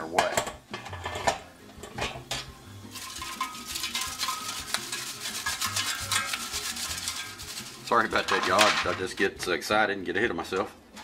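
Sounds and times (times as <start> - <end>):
scraping and clinking against metal basket: 0.4 - 2.3, 2.9 - 9.2.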